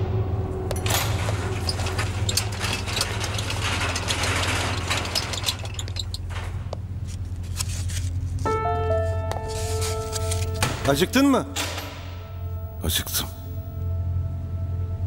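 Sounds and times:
steady low hum: 0.0s - 15.0s
metal trolley rattling: 0.7s - 7.3s.

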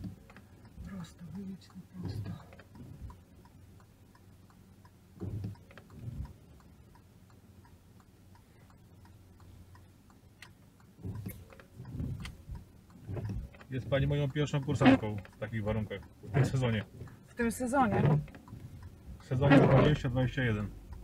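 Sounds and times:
windscreen wiper thumps: 0.0s - 3.5s, 5.1s - 7.0s, 10.3s - 21.0s
car engine running low: 0.0s - 21.0s
light ticks: 0.0s - 21.0s.

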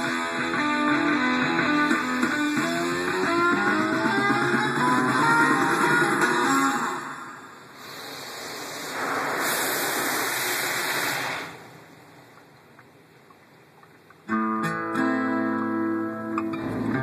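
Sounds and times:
music with guitar chords: 0.0s - 7.0s, 14.3s - 17.0s
water spray hissing on car: 7.8s - 12.0s.

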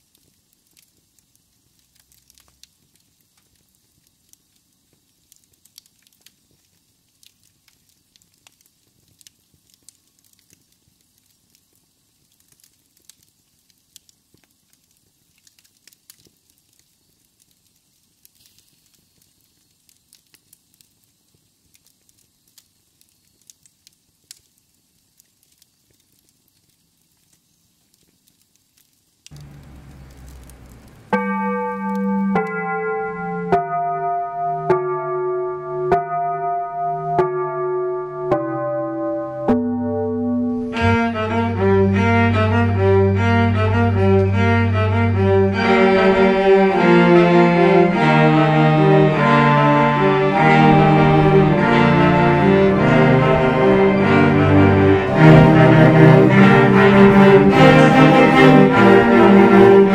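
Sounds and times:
wood fire crackling: 0.0s - 34.0s, 39.0s - 59.9s
low hum: 29.3s - 33.4s, 39.7s - 48.0s.

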